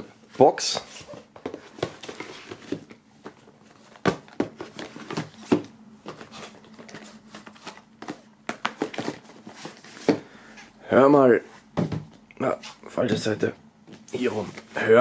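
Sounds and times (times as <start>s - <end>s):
plastic cases clacking and rustling: 0.7s - 10.3s.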